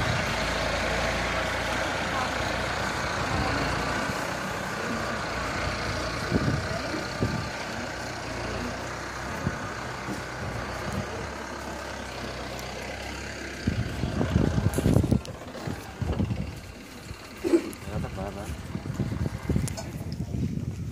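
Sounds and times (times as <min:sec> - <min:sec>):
engine humming: 0:00.0 - 0:20.9
outdoor background noise: 0:00.0 - 0:20.9.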